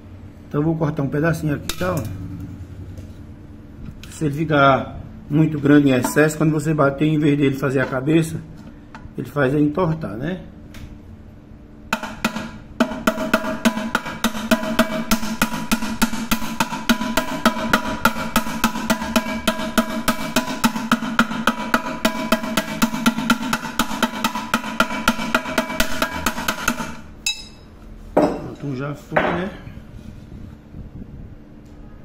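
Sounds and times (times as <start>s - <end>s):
metal pot ringing: 27.2s - 27.7s.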